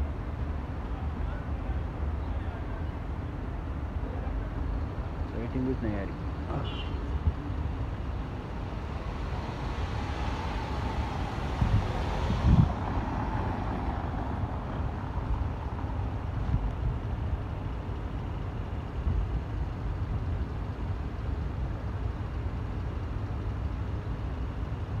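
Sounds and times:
car traffic: 0.0s - 25.0s
wind buffeting microphone: 7.1s - 17.8s.

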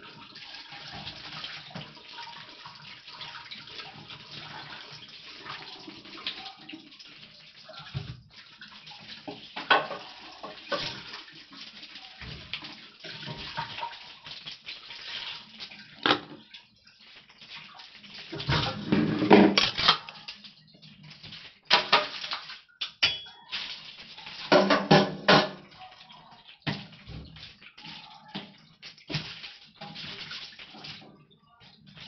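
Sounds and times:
tap water running into sink: 0.0s - 32.0s
dishes clattering against sink: 9.2s - 11.2s, 16.0s - 16.5s, 18.3s - 20.3s, 21.7s - 23.6s, 24.3s - 25.9s.

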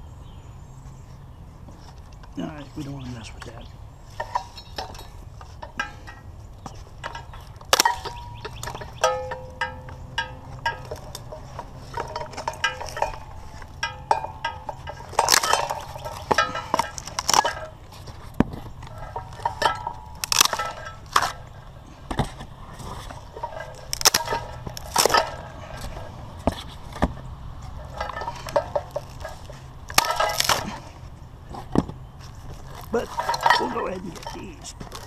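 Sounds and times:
steady low hum: 0.0s - 35.0s
knocks and light clinks: 1.6s - 35.0s.

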